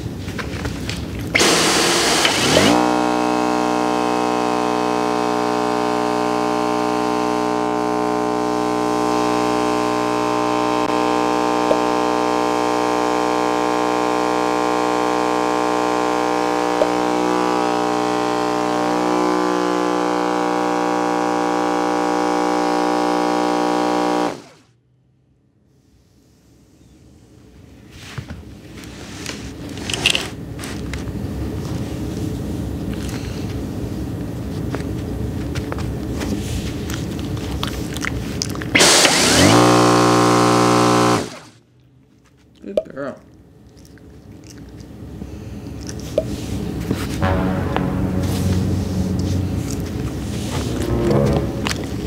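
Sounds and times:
vacuum cleaner motor hum: 1.4 - 24.6, 38.7 - 41.5.

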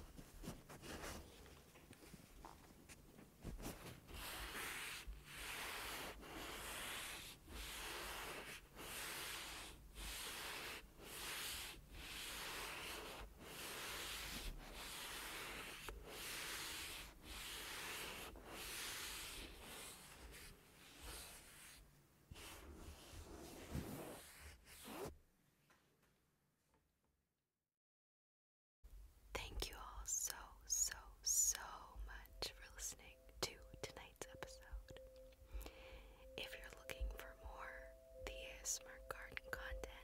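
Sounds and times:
pads rubbing on microphone: 3.4 - 25.2.

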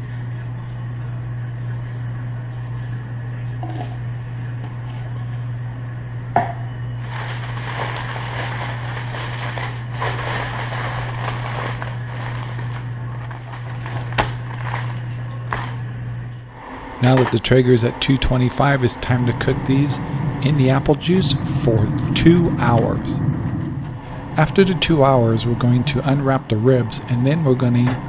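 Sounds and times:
steady low hum: 0.0 - 28.0
aluminium foil crinkling: 7.0 - 15.8.

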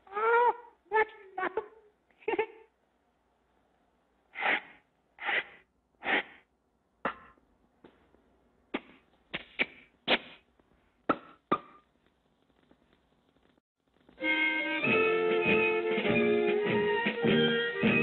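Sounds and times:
kiss smacks: 8.7 - 10.4.

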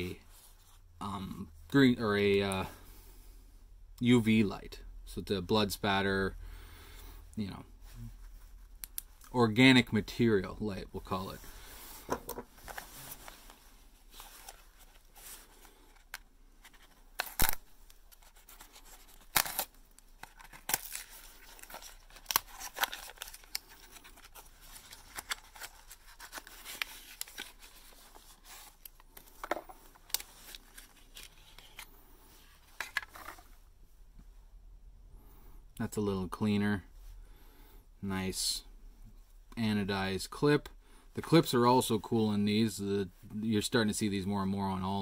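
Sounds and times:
paper packaging rustling and tearing: 12.6 - 31.9.

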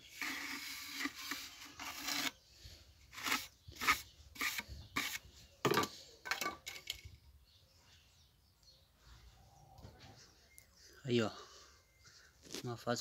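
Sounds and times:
trowel scraping mortar: 0.0 - 2.4, 3.1 - 5.2.

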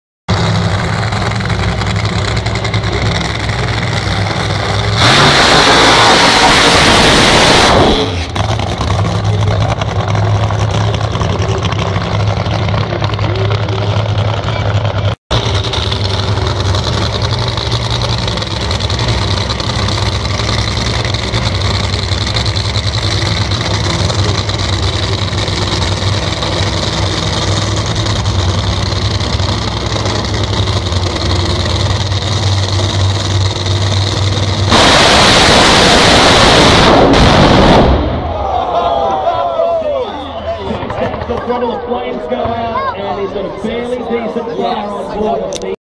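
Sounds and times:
race car engine idling: 0.3 - 5.0, 8.3 - 34.8
race car launching at full throttle: 0.3 - 41.6.

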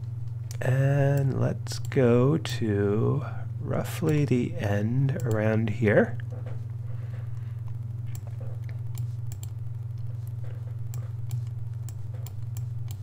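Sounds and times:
steady low hum: 0.0 - 13.0
computer mouse clicks: 8.1 - 13.0.

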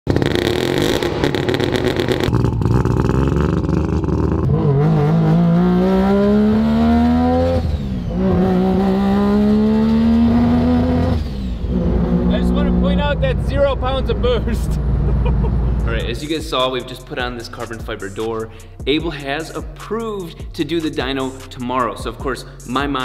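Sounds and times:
rotary engine accelerating: 0.1 - 16.1.

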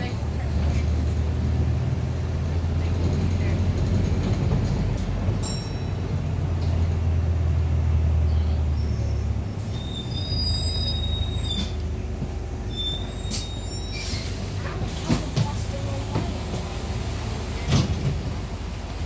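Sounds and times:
bus drive hum: 0.0 - 19.0
high thin brake squeals: 8.6 - 11.8, 12.7 - 14.4.

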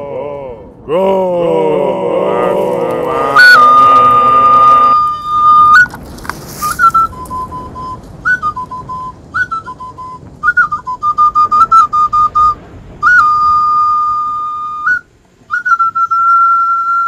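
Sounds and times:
mouth whistle notes: 3.2 - 6.0, 6.6 - 17.0.

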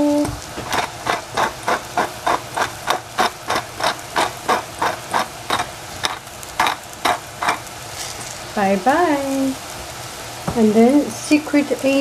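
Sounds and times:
pepper mill grinding: 0.0 - 8.4.

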